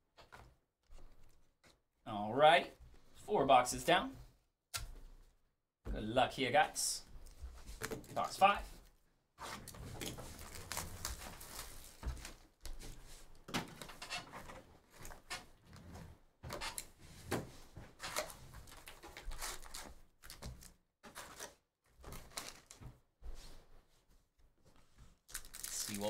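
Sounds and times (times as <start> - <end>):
cardboard and wrapping rustling: 9.4 - 13.4, 17.4 - 22.9, 24.7 - 26.0.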